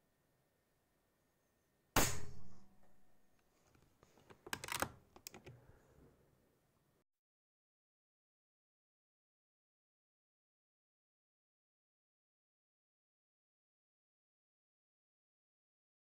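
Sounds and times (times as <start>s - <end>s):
air rifle shot: 2.0s - 2.6s
rifle action clicking: 4.4s - 5.5s.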